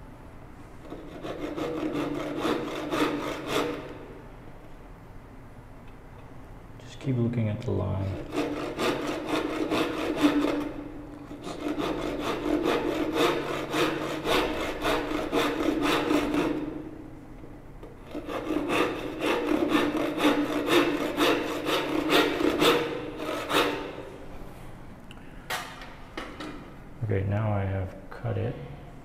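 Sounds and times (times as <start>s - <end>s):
hand saw cutting wood: 0.9s - 4.0s, 8.2s - 16.8s, 18.0s - 24.0s.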